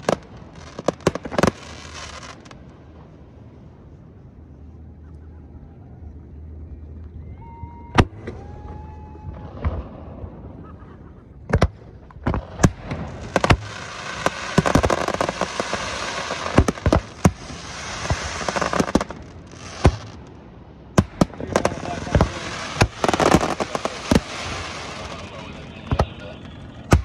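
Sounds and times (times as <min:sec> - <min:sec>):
fireworks bursting with sharp bangs: 0:00.0 - 0:02.6, 0:09.4 - 0:10.6, 0:11.4 - 0:27.0
dense crackling of fireworks: 0:00.0 - 0:03.4, 0:07.4 - 0:27.0.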